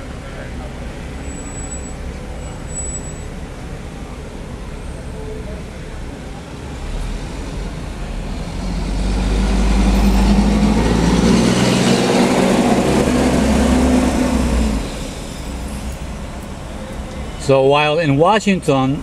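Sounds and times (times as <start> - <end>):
garbage truck diesel engine: 0.0 - 19.0
road noise: 0.0 - 19.0.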